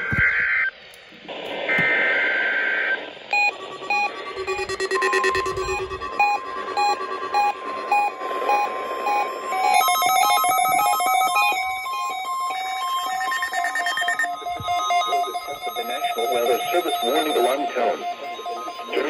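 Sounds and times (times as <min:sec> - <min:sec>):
electronic alert beeps: 0:03.3 - 0:19.0.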